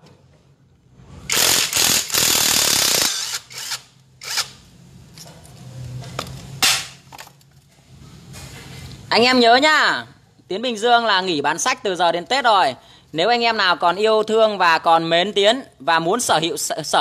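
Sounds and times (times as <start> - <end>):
power tool running: 1.3 - 4.6.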